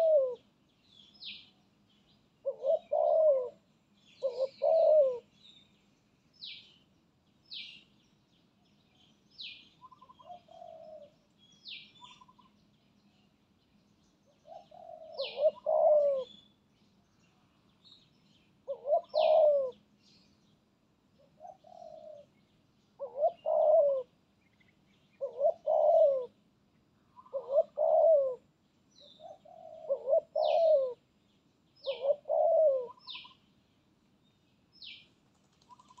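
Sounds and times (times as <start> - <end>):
dove cooing: 0.0 - 0.5, 2.4 - 5.4, 9.8 - 11.2, 14.4 - 16.4, 18.6 - 19.9, 21.2 - 22.4, 23.0 - 24.2, 25.2 - 26.4, 27.2 - 31.1, 31.8 - 33.4, 35.4 - 36.0
small bird high chirps: 4.0 - 20.6, 32.9 - 33.6.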